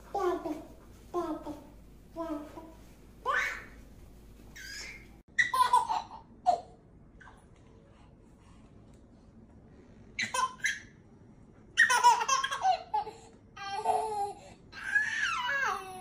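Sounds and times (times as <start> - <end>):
baby laughing: 4.6 - 7.3, 10.2 - 10.9, 11.8 - 14.4.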